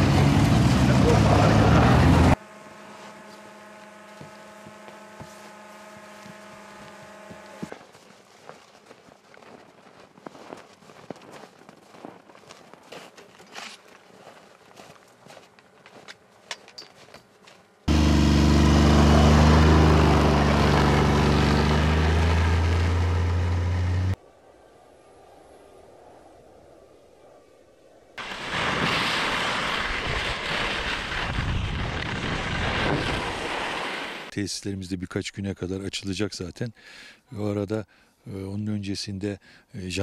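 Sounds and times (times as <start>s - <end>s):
snowmobile engines passing: 0.0s - 7.9s, 17.8s - 24.2s, 28.2s - 34.3s
footsteps crunching in snow: 2.7s - 17.9s.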